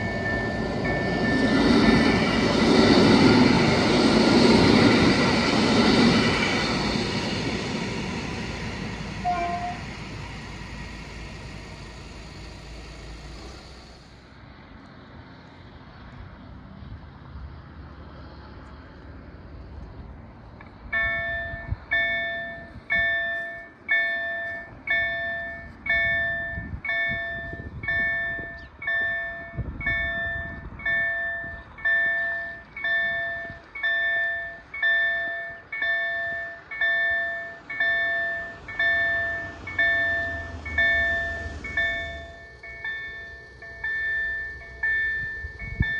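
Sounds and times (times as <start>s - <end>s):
level crossing bell ringing: 21.0s - 45.9s.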